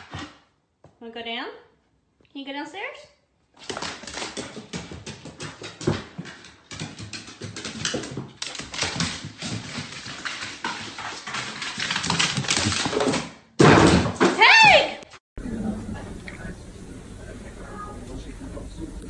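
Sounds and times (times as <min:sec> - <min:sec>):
dog claws clattering on stairs: 0:03.6 - 0:14.3.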